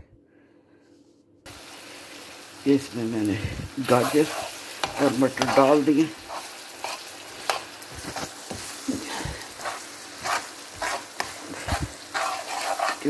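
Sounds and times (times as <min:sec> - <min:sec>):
frying pan sizzling: 0:01.5 - 0:13.0
spoon scraping and knocking a pan: 0:03.9 - 0:13.0.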